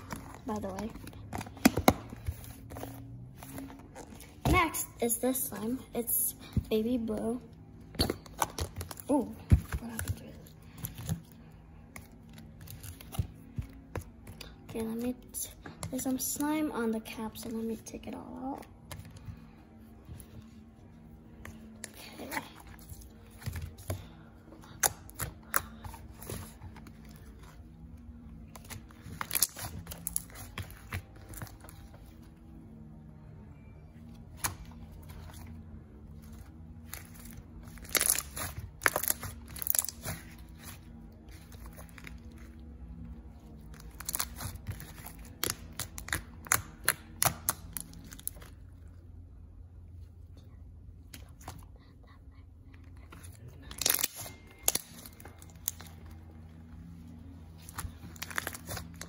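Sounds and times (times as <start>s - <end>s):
slime squishing and popping: 36.8s - 42.5s, 43.7s - 48.5s.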